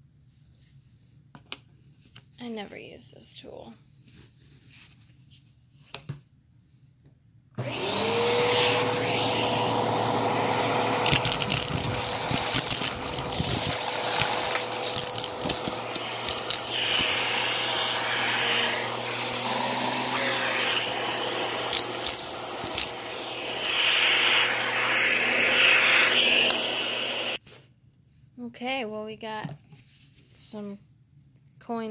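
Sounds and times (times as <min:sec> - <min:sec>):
vacuum cleaner whine: 0:07.6 - 0:27.4
coins clicking and rattling: 0:11.0 - 0:17.0.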